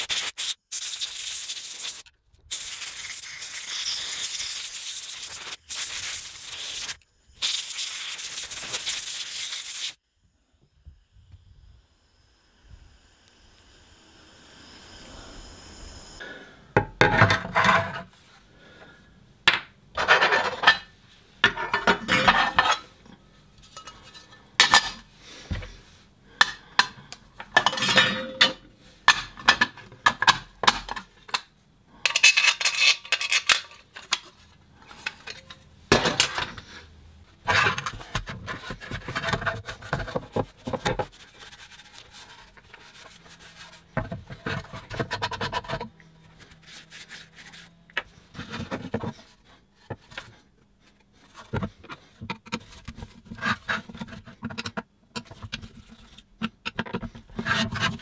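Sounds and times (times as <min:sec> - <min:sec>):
plastic parts clattering and rubbing: 0:20.0 - 0:25.8, 0:26.4 - 0:36.8, 0:37.4 - 0:58.0.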